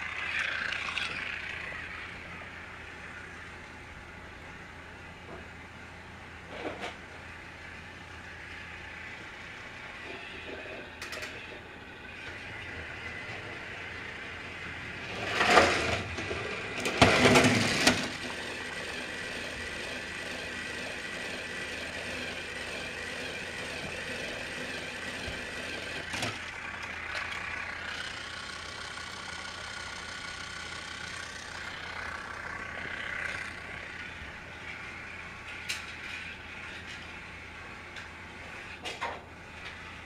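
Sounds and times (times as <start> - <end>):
toy train motor whirring: 0.0 - 3.5, 7.6 - 40.0
loud clatter: 15.0 - 27.7.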